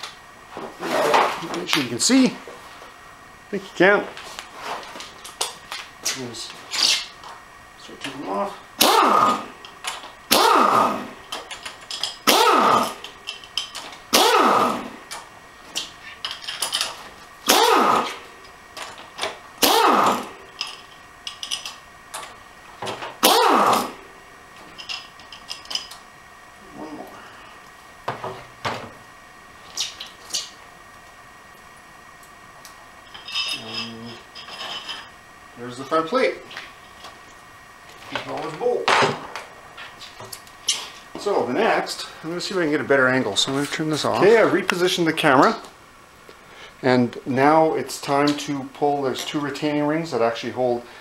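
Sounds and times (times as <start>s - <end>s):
pneumatic impact wrench bursts: 8.8s - 15.0s, 17.4s - 18.2s, 19.6s - 20.4s, 23.2s - 24.0s.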